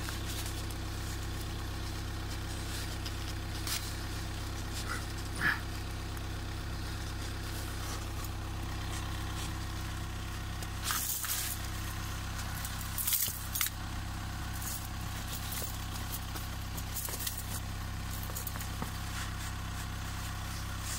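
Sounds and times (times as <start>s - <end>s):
car engine idling: 0.0s - 20.9s
metal snow chain rattling: 10.8s - 19.2s.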